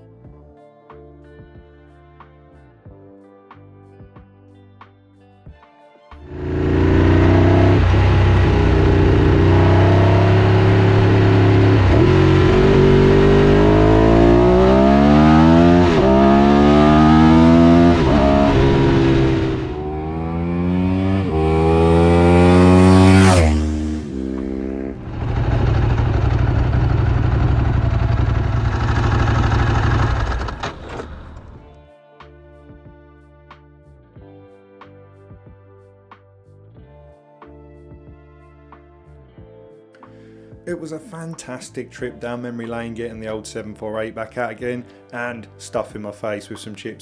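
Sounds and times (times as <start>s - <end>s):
motorcycle engine accelerating: 6.3s - 31.7s.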